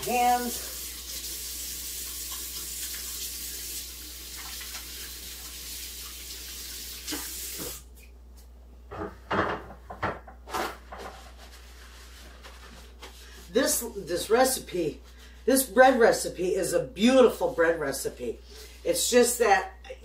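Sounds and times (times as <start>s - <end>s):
tap water running: 0.0s - 7.9s.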